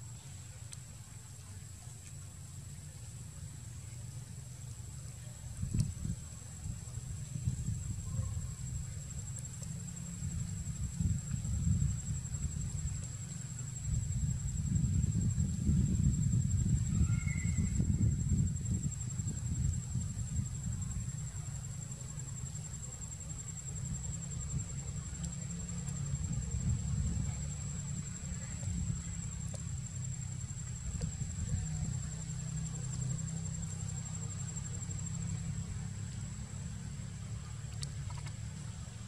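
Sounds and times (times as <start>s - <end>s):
continuous low rumble: 0.0s - 39.0s
high-pitched insect drone: 13.7s - 19.7s.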